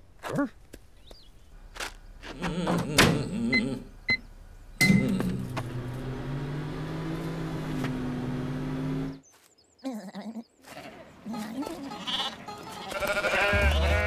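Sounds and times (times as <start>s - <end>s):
vocal murmur: 2.2s - 3.9s
appliance beep: 3.5s - 5.3s.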